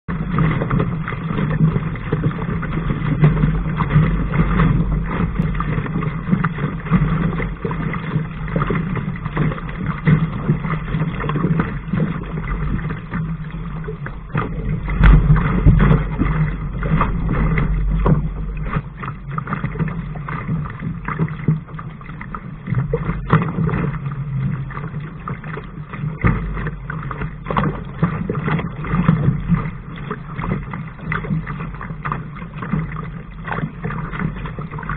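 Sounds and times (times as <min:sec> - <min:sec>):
water rushing along a hull: 0:00.0 - 0:34.9
wind rumbling on microphone: 0:00.1 - 0:34.9.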